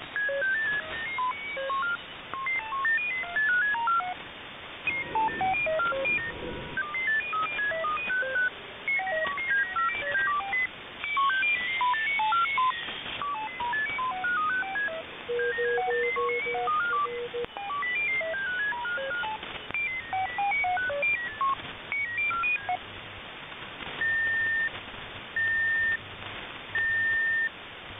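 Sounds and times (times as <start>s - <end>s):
radio band noise hiss: 0.0s - 27.9s
digital radio beeps at random pitches: 0.1s - 4.2s, 4.8s - 22.8s, 24.0s - 24.7s, 25.4s - 26.0s, 26.8s - 27.5s
higher steady tone: 4.8s - 8.5s.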